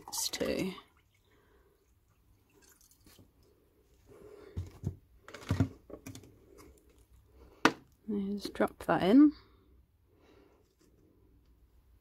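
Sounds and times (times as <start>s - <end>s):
plastic bottle knocks and clicks: 4.6s - 6.3s, 7.6s - 7.9s.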